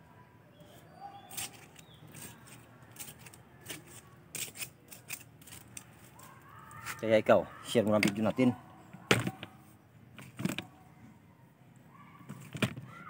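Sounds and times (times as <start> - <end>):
hand tool scraping soil: 1.3 - 5.7.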